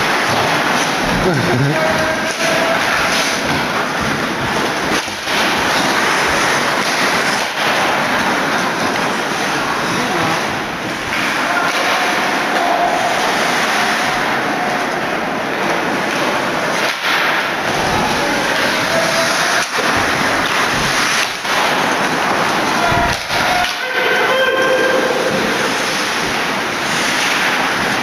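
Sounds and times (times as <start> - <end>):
crowd cheering and shouting: 0.0 - 4.0, 11.2 - 27.3.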